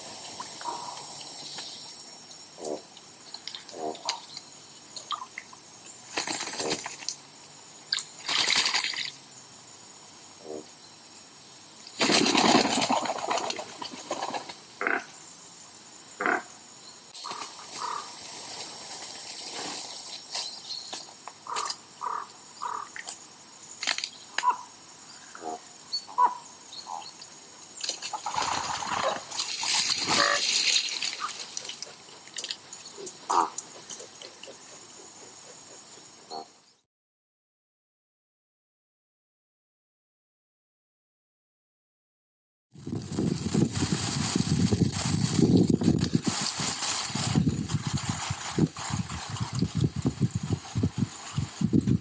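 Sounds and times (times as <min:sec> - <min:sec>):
rustles: 0:00.0 - 0:14.8, 0:17.2 - 0:24.7, 0:27.0 - 0:36.4, 0:42.8 - 0:52.0
birds splashing and wing flaps: 0:06.1 - 0:07.2, 0:08.0 - 0:09.1, 0:12.0 - 0:14.6, 0:27.8 - 0:32.6.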